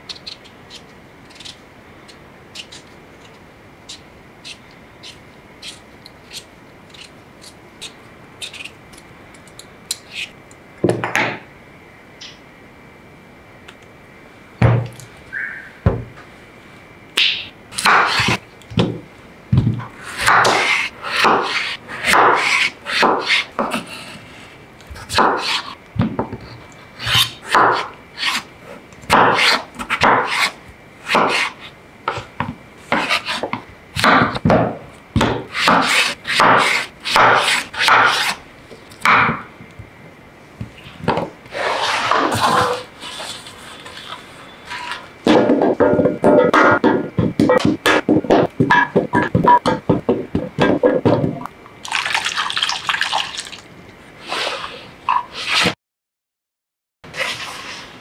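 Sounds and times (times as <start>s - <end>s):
knife cutting potatoes: 0.1s - 10.4s, 17.8s - 18.4s, 27.0s - 28.5s, 35.2s - 38.4s
peeler scraping potato skin: 0.1s - 10.4s, 27.0s - 28.5s.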